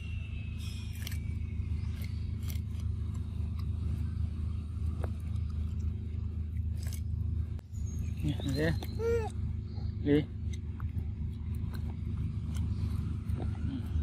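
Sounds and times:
steady low rumble: 0:00.0 - 0:14.0
monkey chewing corn: 0:00.8 - 0:07.3.

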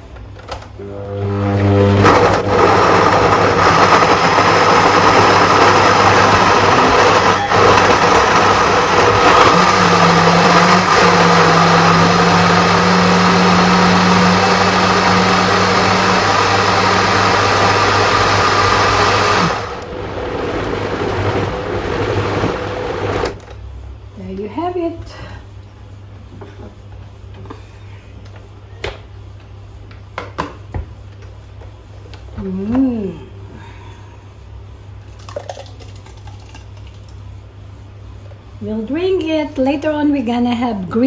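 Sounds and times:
blender running: 0:00.8 - 0:23.4.

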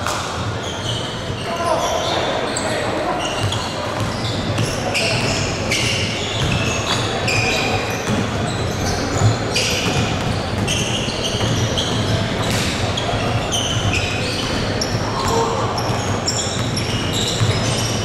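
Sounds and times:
shoes squeaking on floor: 0:00.4 - 0:18.0
basketball dribbling: 0:03.4 - 0:07.0, 0:09.2 - 0:18.0.

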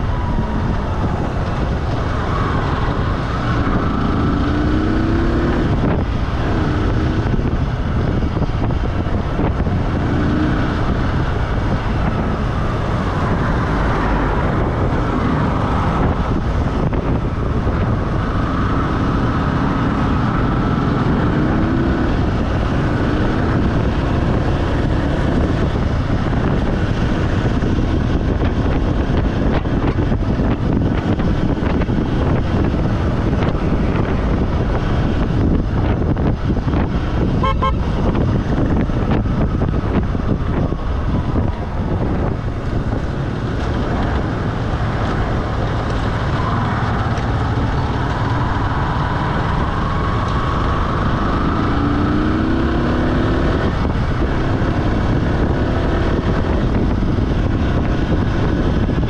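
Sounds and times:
vehicle rumble on road: 0:00.0 - 0:59.0
short horn toot: 0:37.4 - 0:37.8.

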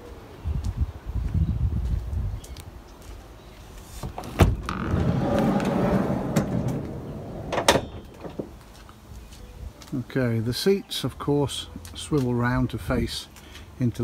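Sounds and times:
door stopping with clunk: 0:04.0 - 0:08.6
sliding door rolling on track: 0:04.2 - 0:08.5.

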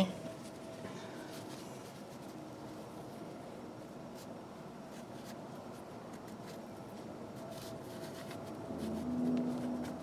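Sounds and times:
scratching and rubbing strokes: 0:04.1 - 0:10.0.

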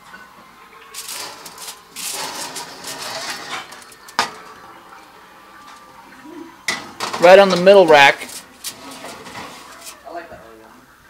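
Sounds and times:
foil tray rustling and scraping: 0:00.9 - 0:04.8, 0:07.0 - 0:10.1.

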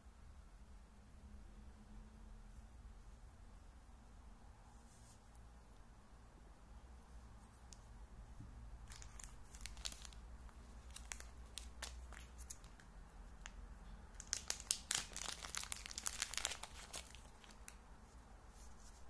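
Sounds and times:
plastic bag crinkling: 0:08.8 - 0:13.6, 0:14.2 - 0:17.8.

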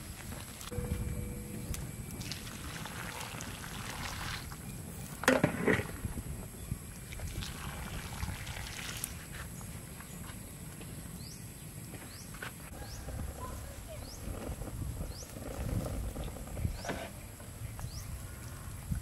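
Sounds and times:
low rumble: 0:00.7 - 0:05.0.

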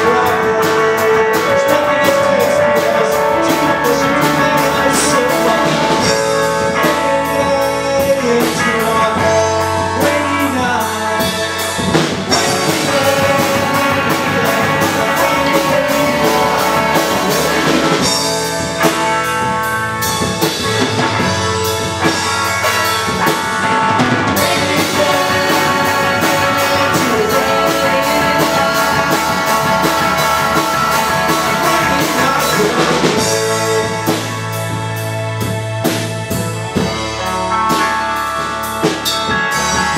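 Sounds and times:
man singing: 0:00.0 - 0:19.0, 0:22.0 - 0:34.8
drum kit: 0:00.0 - 0:39.9
electric bass: 0:00.0 - 0:39.9
electric guitar: 0:00.0 - 0:39.9
electronic keyboard: 0:00.0 - 0:39.9.

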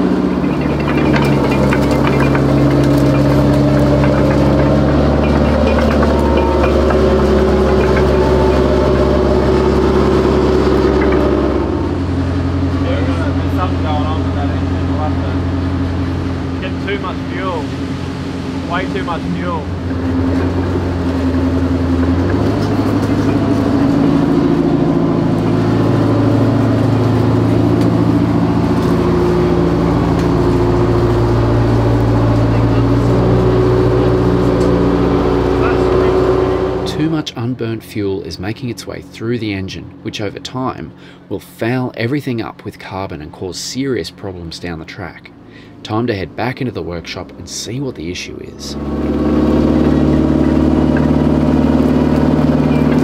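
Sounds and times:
diesel engine running: 0:00.0 - 0:53.0.

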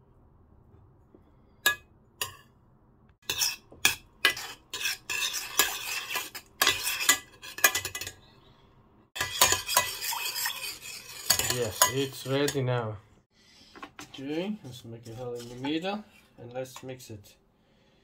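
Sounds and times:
metal spoon scraping saucepan: 0:03.2 - 0:08.5, 0:09.2 - 0:12.8, 0:13.8 - 0:17.0.

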